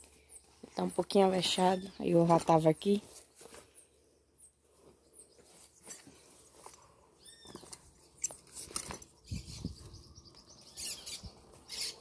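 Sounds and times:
leather straps and buckles rustling: 0:00.0 - 0:04.0, 0:04.7 - 0:10.0.

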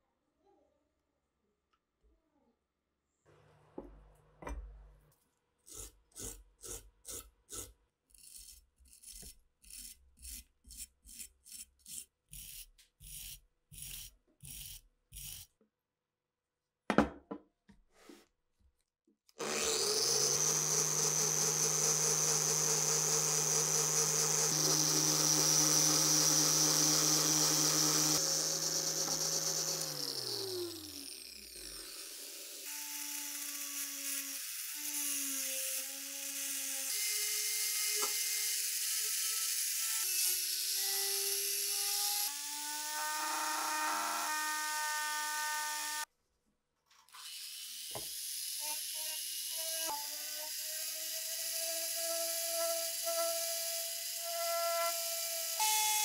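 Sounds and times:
filing strokes on metal: 0:05.6 - 0:15.5
rotary tool whine: 0:19.4 - 0:37.1, 0:38.0 - 0:46.1.

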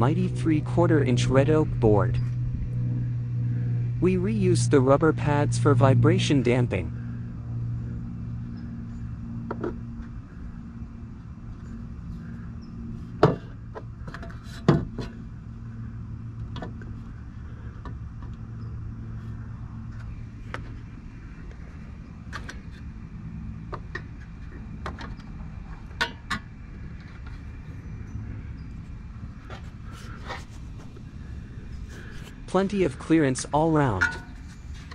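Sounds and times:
steady low hum: 0:00.0 - 0:34.9
parts knocking on wood: 0:13.2 - 0:15.1.

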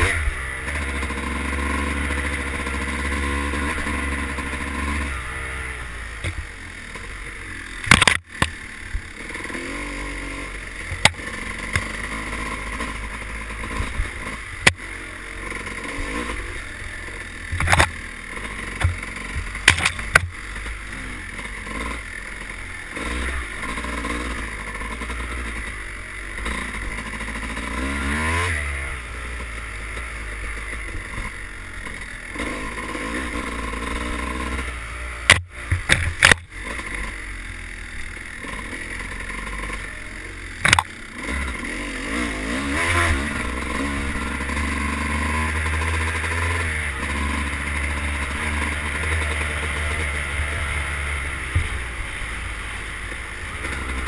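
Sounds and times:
dirt bike engine revving: 0:00.0 - 0:54.0
sharp knocks: 0:18.8 - 0:20.3, 0:40.6 - 0:40.9.

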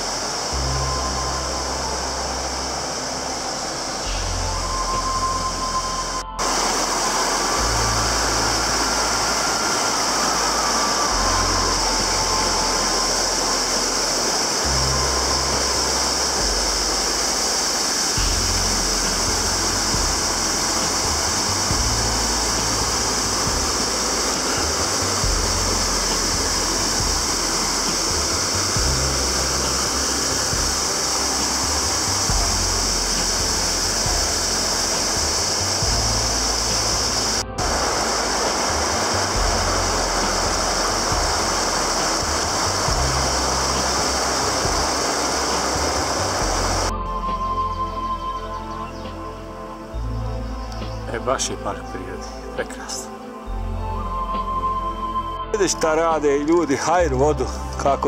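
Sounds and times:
waterfall pouring over rocks: 0:00.0 - 0:47.4.

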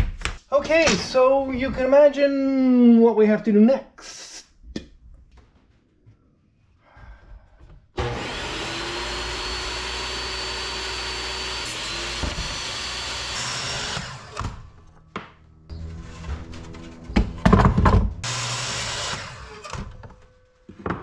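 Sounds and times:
table saw cutting wood: 0:08.0 - 0:14.8, 0:15.9 - 0:20.2.

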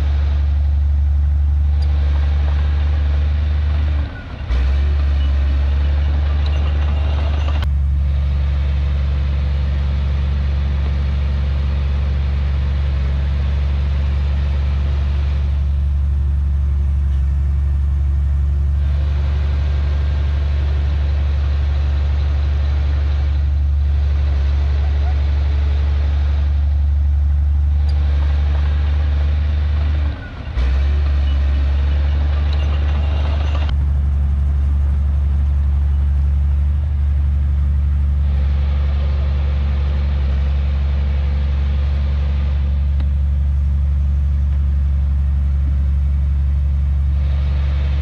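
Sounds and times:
bulldozer diesel engine droning: 0:00.0 - 0:48.0.

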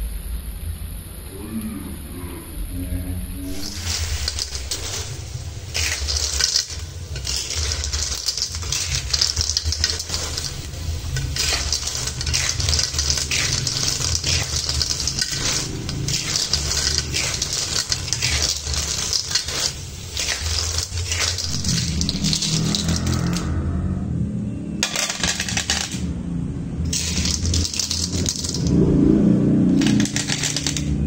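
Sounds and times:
steady low hum: 0:00.0 - 0:31.0
shells clattering in a wok: 0:03.5 - 0:23.6, 0:24.8 - 0:26.2, 0:26.8 - 0:28.8, 0:29.7 - 0:31.0.

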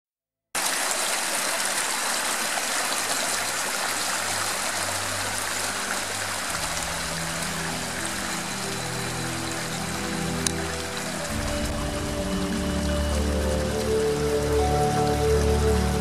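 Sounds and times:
stream running over cascades: 0:00.6 - 0:16.0
faint music: 0:03.5 - 0:16.0.

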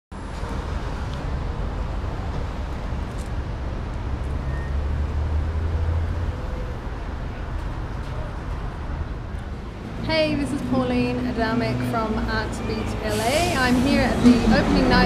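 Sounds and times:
low rumble of passing vehicles: 0:00.1 - 0:15.0
traffic hiss: 0:12.9 - 0:15.0.

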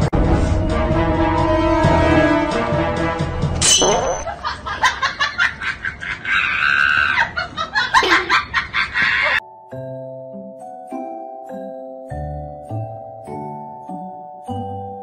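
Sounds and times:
music: 0:00.0 - 0:03.7, 0:09.4 - 0:15.0
rhythmic laughing sounds: 0:04.2 - 0:09.4.

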